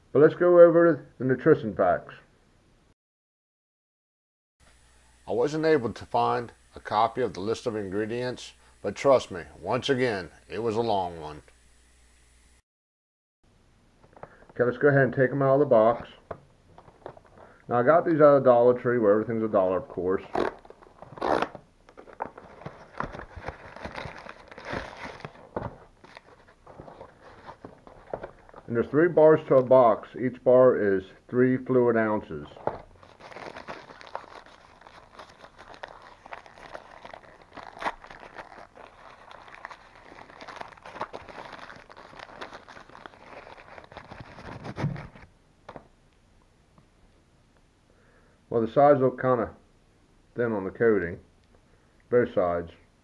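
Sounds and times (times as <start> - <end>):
cardboard and paper crinkling: 20.5 - 28.8, 32.5 - 45.3.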